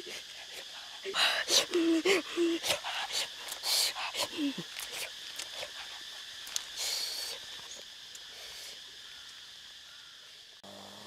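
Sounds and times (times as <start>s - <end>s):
goose hissing: 0.0s - 6.0s, 6.7s - 8.8s
high insect buzz: 0.0s - 11.0s.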